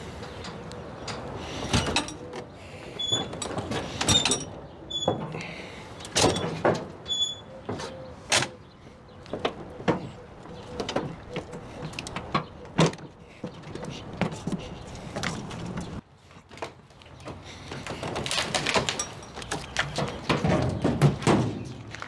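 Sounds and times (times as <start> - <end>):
short high squeaks: 7.0 - 8.0.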